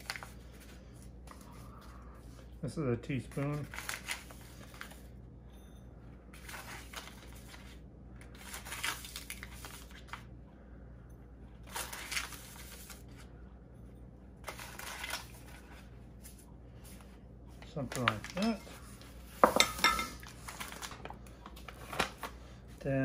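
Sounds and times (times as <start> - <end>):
paper packet rustling: 0.0 - 1.5, 3.2 - 5.1, 6.3 - 10.3, 11.6 - 13.3, 14.4 - 19.2, 20.2 - 22.4
steady low hum: 0.0 - 23.0.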